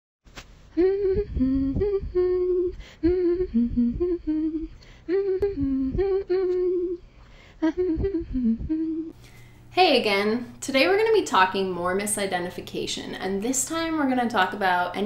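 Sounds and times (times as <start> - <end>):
woman humming: 0.7 - 9.2.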